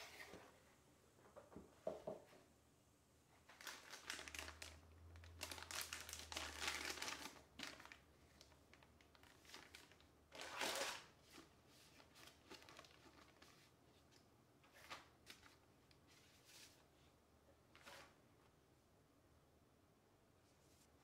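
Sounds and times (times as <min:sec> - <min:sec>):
plastic bags crinkling: 0:03.5 - 0:13.7.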